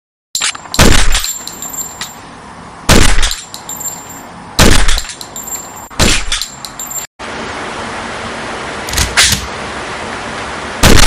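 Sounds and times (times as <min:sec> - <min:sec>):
loud gunshot bangs: 0:00.8 - 0:01.2, 0:02.9 - 0:03.4, 0:04.6 - 0:05.0, 0:06.0 - 0:06.4.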